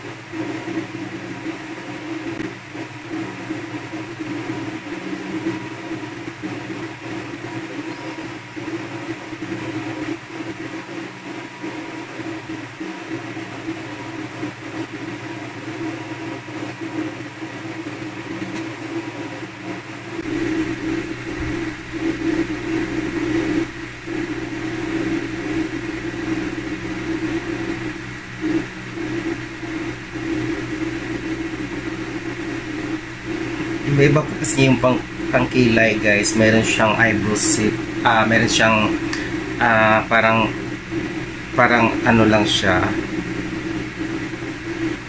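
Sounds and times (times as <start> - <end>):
machine drone with held tones: 0.0 - 45.0
deep rumble: 20.2 - 45.0.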